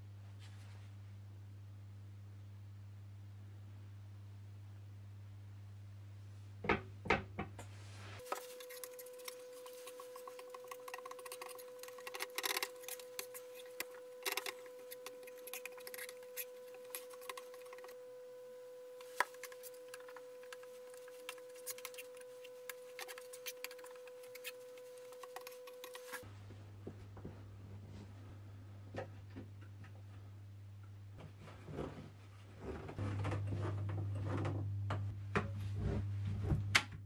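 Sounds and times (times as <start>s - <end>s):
steady high hum: 7.7s - 36.9s
fingers rubbing glue on wood: 8.2s - 18.0s.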